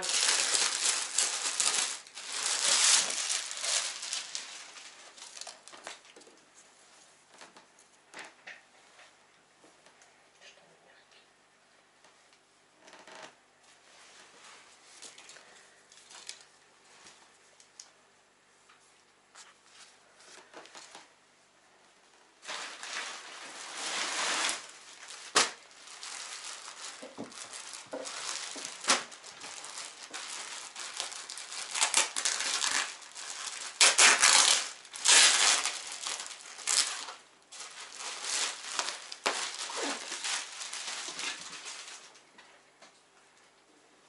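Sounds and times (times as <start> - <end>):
plastic bags crinkling: 0.0 - 6.2, 15.0 - 16.6, 22.4 - 42.3.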